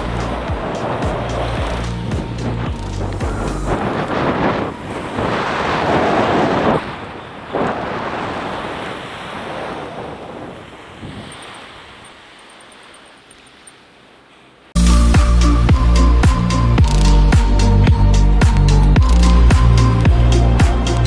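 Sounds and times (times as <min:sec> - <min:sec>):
wind buffeting microphone: 0:00.0 - 0:12.3.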